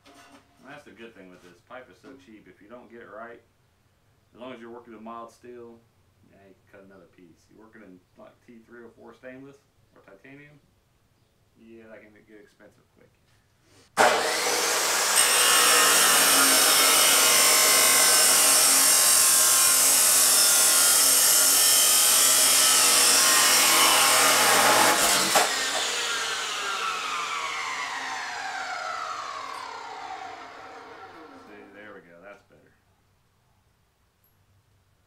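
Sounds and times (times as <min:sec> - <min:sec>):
chop saw cutting steel pipe: 0:14.0 - 0:31.7
saw wheel spinning down whine: 0:14.0 - 0:31.8.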